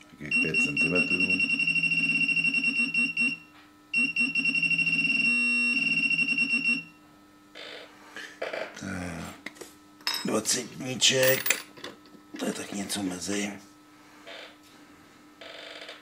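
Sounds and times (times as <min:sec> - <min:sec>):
metal detector beeping and buzzing: 0:00.3 - 0:03.4, 0:04.0 - 0:06.9.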